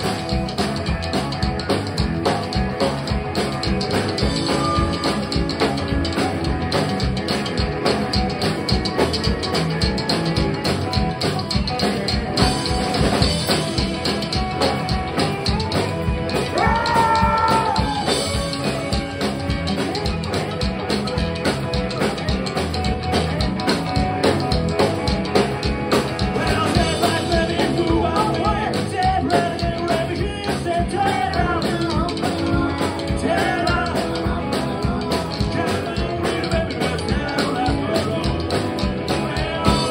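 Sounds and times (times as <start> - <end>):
rockabilly band playing: 0.0 - 39.9
lead vocals: 16.4 - 18.6, 26.2 - 39.9.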